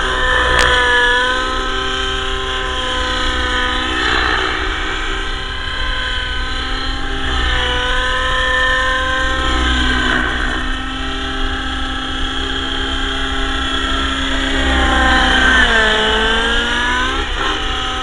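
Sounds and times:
model helicopter rotor whine: 0:00.0 - 0:18.0.

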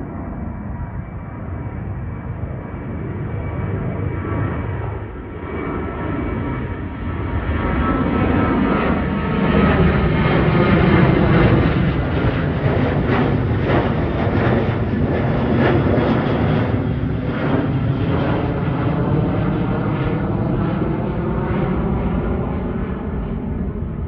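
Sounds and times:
jet engines roaring overhead: 0:00.0 - 0:24.0.

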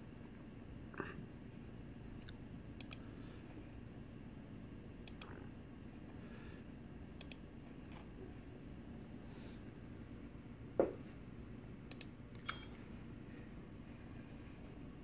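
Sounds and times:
low room hum: 0:00.0 - 0:15.0
computer mouse button clicks: 0:11.9 - 0:12.7.

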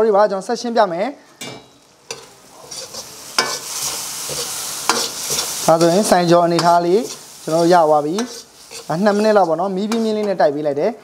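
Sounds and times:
noodles sizzling in a wok: 0:02.0 - 0:10.4
metal ladle scraping a wok: 0:02.1 - 0:06.0, 0:08.1 - 0:10.2.

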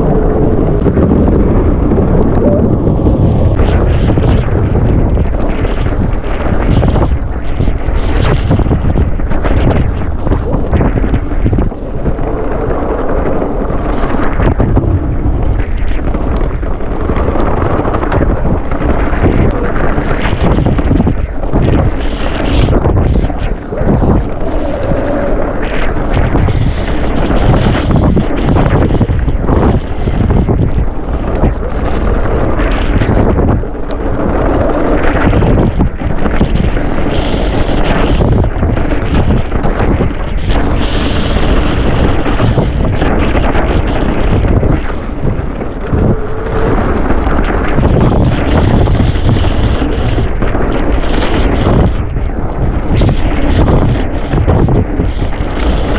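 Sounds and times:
bike tyre noise: 0:00.0 - 0:55.9
wind on microphone: 0:00.0 - 0:55.9.

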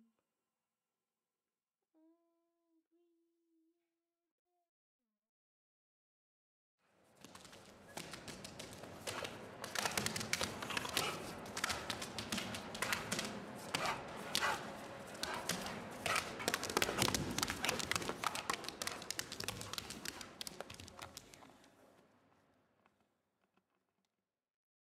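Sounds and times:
rapid tapping and clicking: 0:07.2 - 0:21.6.

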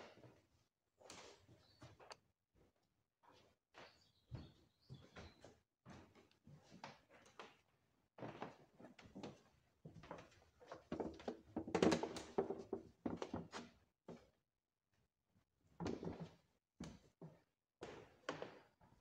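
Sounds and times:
footsteps on wooden floorboards: 0:04.3 - 0:07.1.

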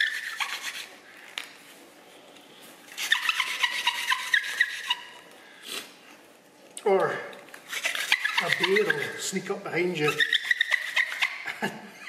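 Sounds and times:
wooden hand drill squeaking: 0:00.0 - 0:01.4, 0:02.9 - 0:05.3, 0:07.6 - 0:11.4.

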